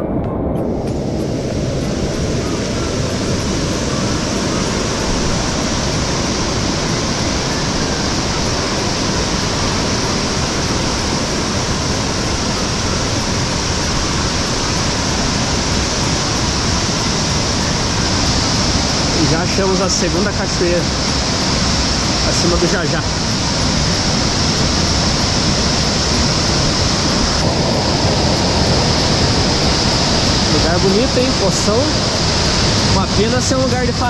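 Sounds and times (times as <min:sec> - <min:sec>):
stream water rushing over cascades: 0:00.6 - 0:34.0.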